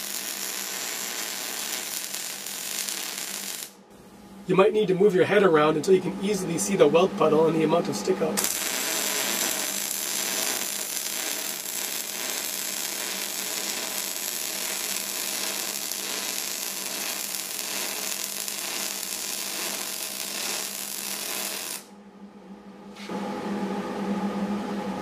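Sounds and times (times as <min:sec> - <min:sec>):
welding arc crackling: 0:00.0 - 0:03.8, 0:08.4 - 0:21.9.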